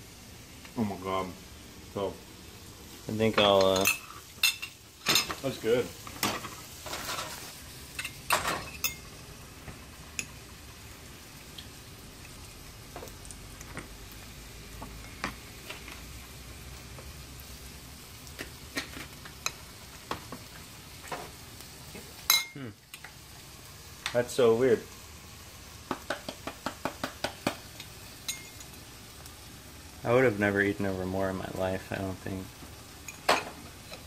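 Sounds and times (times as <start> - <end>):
fish sizzling in frying pan: 0.0 - 34.0.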